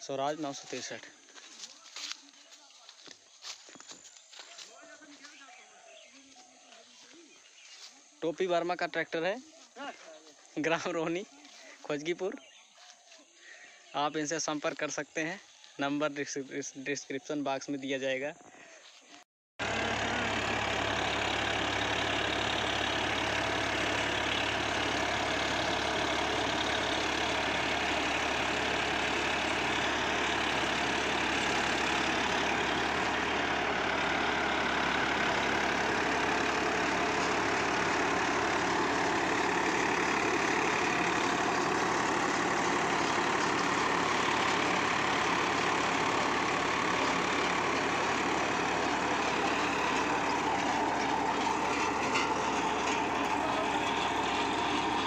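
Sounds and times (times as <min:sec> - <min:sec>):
tractor diesel engine running: 0:00.0 - 0:18.0, 0:18.8 - 0:55.0
rotary blades churning soil: 0:19.6 - 0:55.0.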